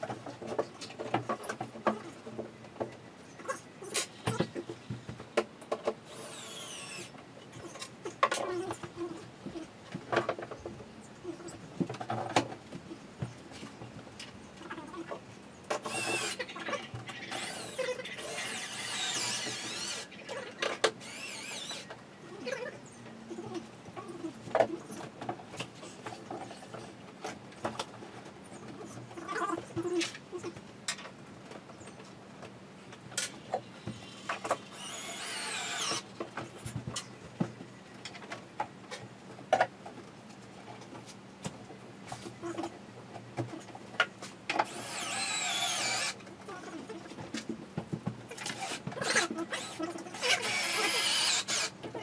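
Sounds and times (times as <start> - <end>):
cordless drill whining: 6.1 - 7.1, 15.8 - 16.4, 17.3 - 20.1, 21.0 - 21.9, 34.7 - 36.0, 44.6 - 46.2, 48.5 - 51.8.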